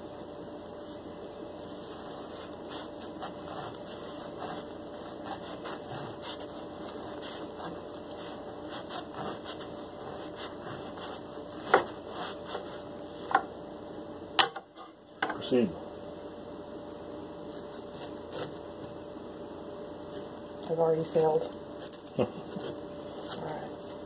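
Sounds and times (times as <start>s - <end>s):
knife sawing through bread: 1.6s - 12.9s.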